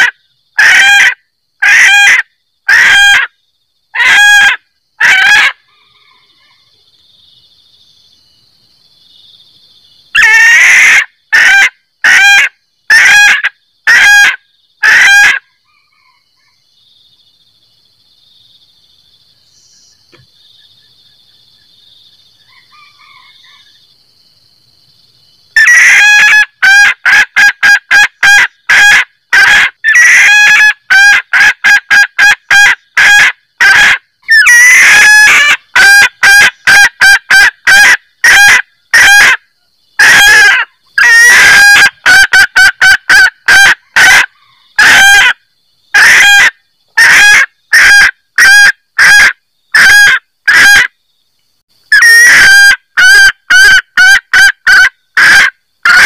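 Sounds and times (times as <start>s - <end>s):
hen cackling calls: 0.0s - 6.7s, 10.1s - 16.6s, 25.6s - 50.9s, 51.9s - 56.0s.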